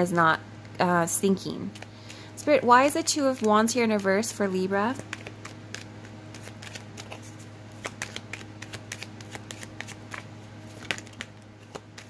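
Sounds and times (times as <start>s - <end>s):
cards being shuffled: 4.9s - 12.0s.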